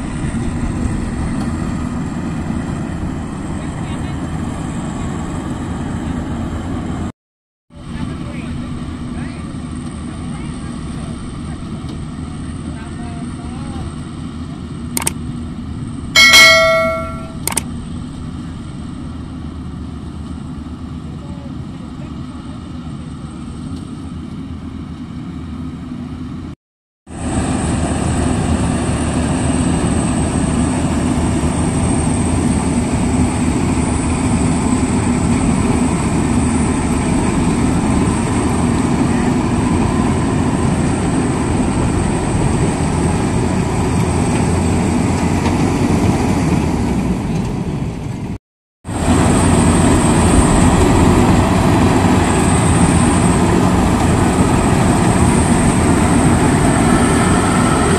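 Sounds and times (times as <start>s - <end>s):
combine harvester running: 0.0s - 7.1s, 7.8s - 26.5s, 27.2s - 57.9s
thin high whine: 16.2s - 17.6s.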